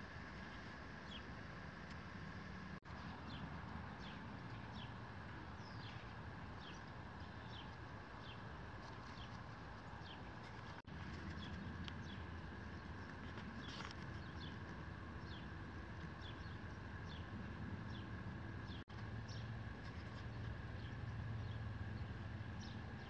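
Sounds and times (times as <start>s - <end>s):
low steady rumble: 0.0s - 23.0s
bird chirping: 5.6s - 15.5s.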